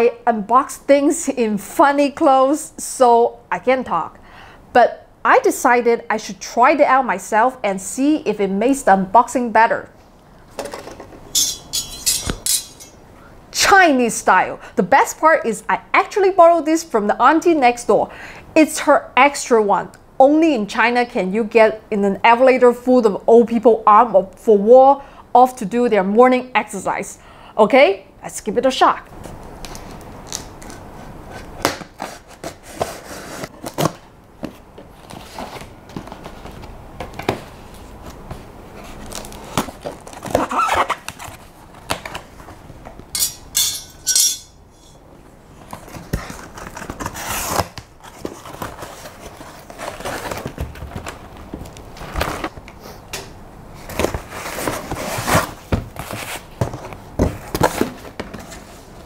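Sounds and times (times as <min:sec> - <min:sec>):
sharp rasp: 0:11.4 - 0:12.9.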